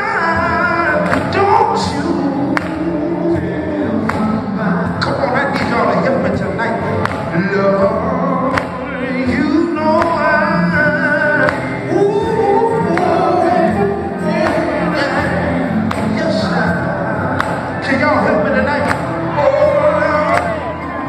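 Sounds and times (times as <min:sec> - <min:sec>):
electric bass guitar: 0:00.0 - 0:21.0
group vocals: 0:00.0 - 0:21.0
man singing lead: 0:00.0 - 0:21.0
drum beat: 0:00.3 - 0:20.6.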